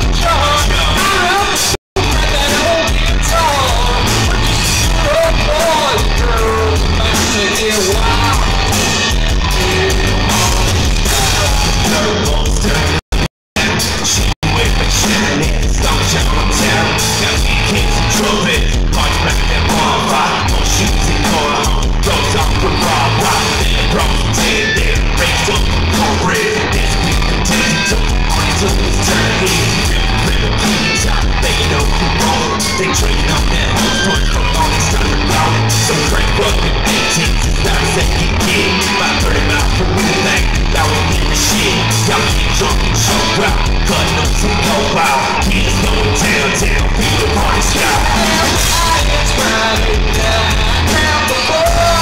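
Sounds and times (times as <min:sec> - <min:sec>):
bass guitar: 0:00.0 - 0:52.0
drums with steady beat: 0:00.0 - 0:52.0
electric guitars: 0:00.0 - 0:52.0
people singing into microphones: 0:13.6 - 0:52.0.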